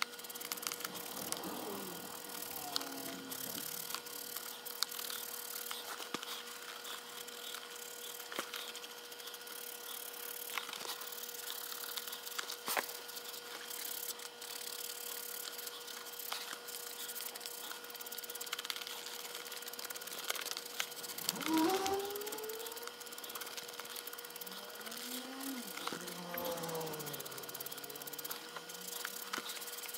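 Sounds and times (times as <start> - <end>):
faint hum: 0.0 - 29.9
leather creak rising in pitch: 0.4 - 5.8, 20.1 - 29.6.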